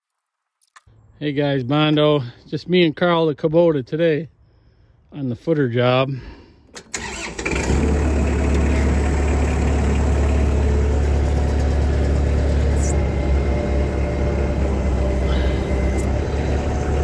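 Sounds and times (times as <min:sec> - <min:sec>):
diesel engine idling: 0:06.9 - 0:17.0.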